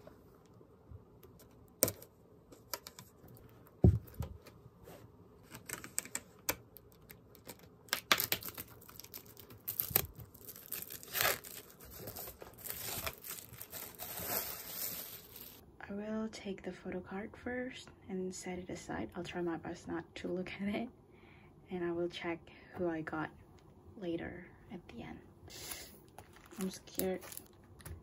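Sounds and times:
plastic wrap crinkling and tearing: 6.9s - 15.6s, 26.1s - 27.9s.

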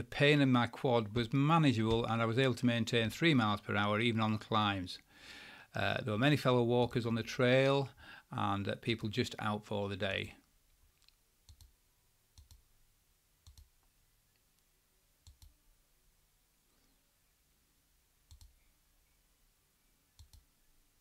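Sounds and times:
faint short clicks: 20.2s - 20.5s.

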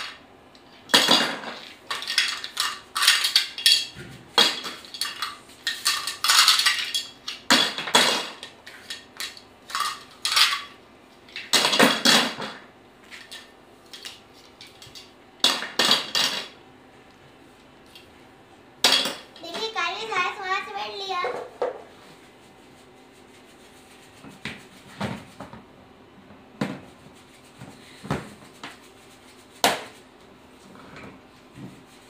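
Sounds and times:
plastic toys clattering into bin: 0.9s - 10.8s, 14.9s - 16.6s.

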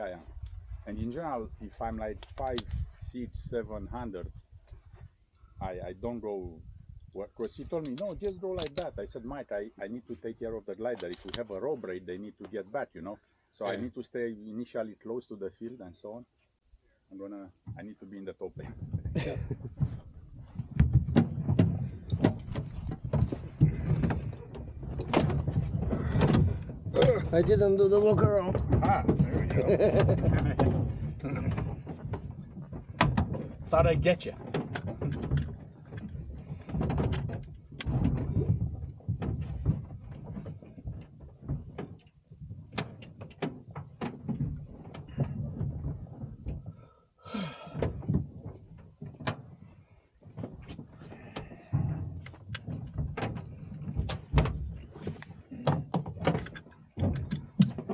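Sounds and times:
wind rumbling on microphone: 0.0s - 9.6s, 18.5s - 46.9s
knocks and thuds in cockpit: 17.6s - 57.9s.

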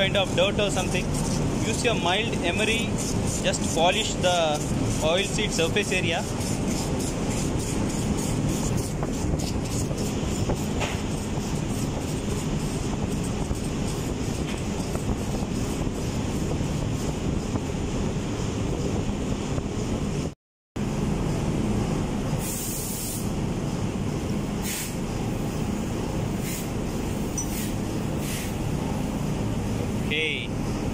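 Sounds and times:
rapid scraping by hand: 0.0s - 17.1s
ship engine room drone: 0.0s - 30.9s
short high hiss: 22.4s - 23.3s, 24.6s - 25.0s, 27.5s - 28.6s.

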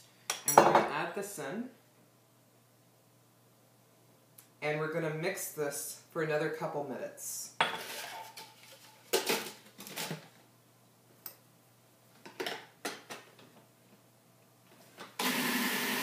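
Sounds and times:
food processor motor running: 15.2s - 16.0s.

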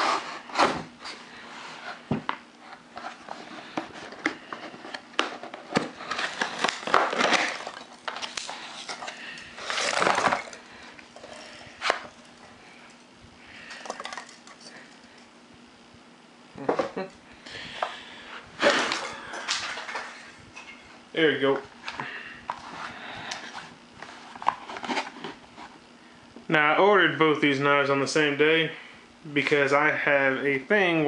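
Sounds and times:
cardboard and packing peanuts rustling: 2.7s - 15.3s, 18.6s - 20.4s, 22.5s - 25.8s.

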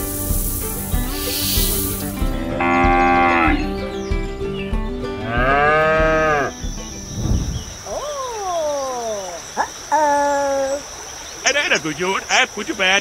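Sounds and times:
cow mooing: 2.6s - 3.7s, 5.2s - 6.5s.

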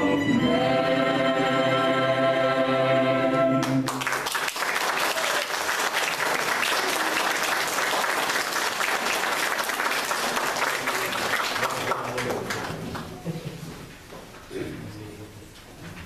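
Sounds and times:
choir singing chord: 0.0s - 3.8s
audience applause: 3.6s - 13.2s.

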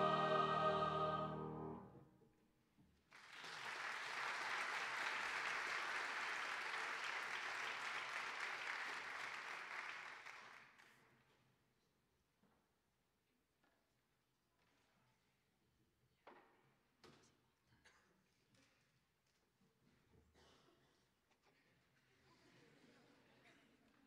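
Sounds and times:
choir singing chord: 0.0s - 2.0s
congregation applauding: 3.1s - 10.9s.

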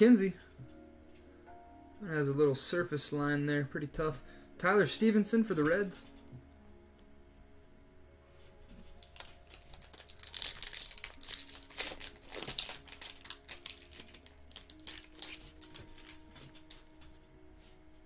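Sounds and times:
foil wrapper crinkling: 8.7s - 17.0s.

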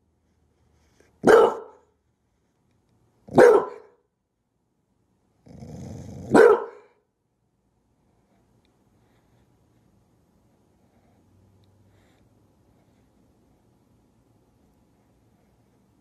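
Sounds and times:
dog barking: 1.2s - 1.9s, 3.3s - 4.0s, 6.2s - 7.0s
dog growling: 5.4s - 6.4s.

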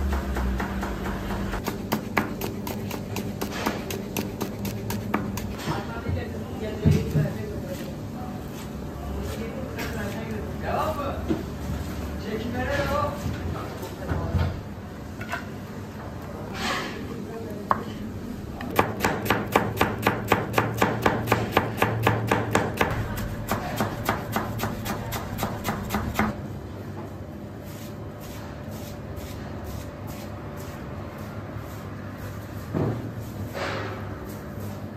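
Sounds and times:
knife chopping on plastic board: 0.0s - 5.6s, 18.6s - 26.3s.

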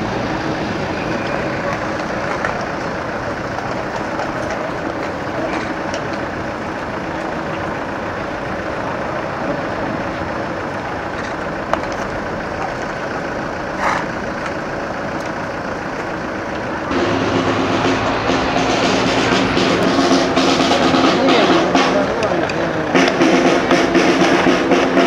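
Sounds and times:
car engine running slowly: 0.0s - 25.0s
crowd street noise: 0.0s - 25.0s
drums and band music: 16.9s - 25.0s.

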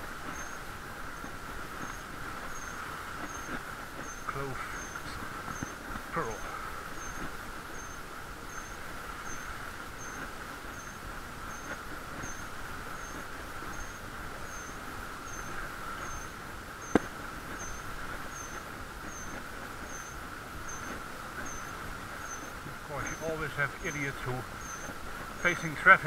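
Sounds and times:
muffled bicycle riding hum: 0.0s - 26.0s
faint high chirp: 0.3s - 0.6s, 7.0s - 25.7s.

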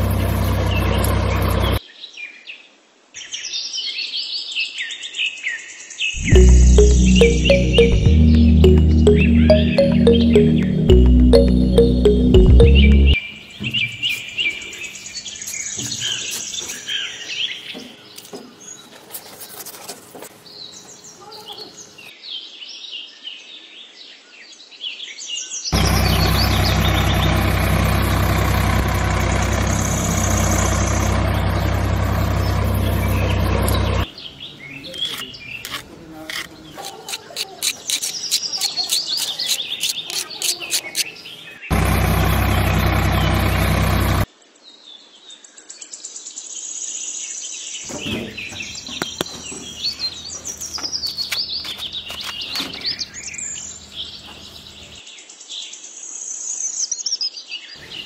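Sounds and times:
birds chirping: 6.2s - 18.9s, 25.7s - 44.3s, 47.8s - 55.0s
light scraping and clicking: 35.0s - 41.1s.

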